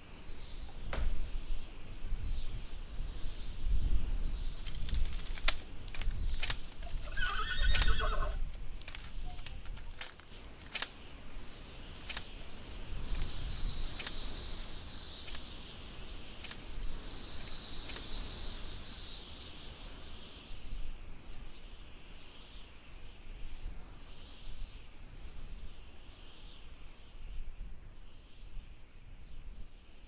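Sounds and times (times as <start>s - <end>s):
sharp clicks: 4.6s - 11.3s, 12.0s - 14.2s
horse whinnying: 6.8s - 8.4s.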